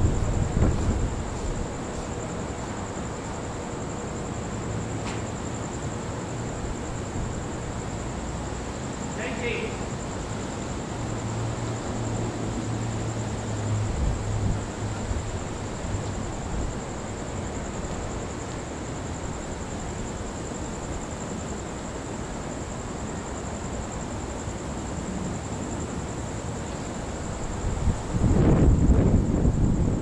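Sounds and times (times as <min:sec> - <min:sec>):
gusty wind rushing: 0:00.0 - 0:02.4, 0:11.1 - 0:17.2, 0:27.2 - 0:30.0.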